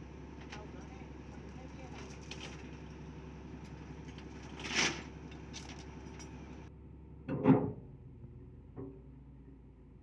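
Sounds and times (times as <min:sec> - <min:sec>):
excavator diesel engine running: 0:00.0 - 0:07.1.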